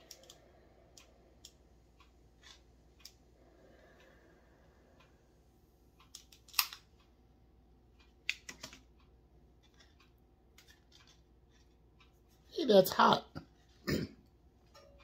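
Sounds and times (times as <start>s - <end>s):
tool and wire clicks and clacks: 6.0s - 7.0s, 8.2s - 9.0s, 9.6s - 12.2s.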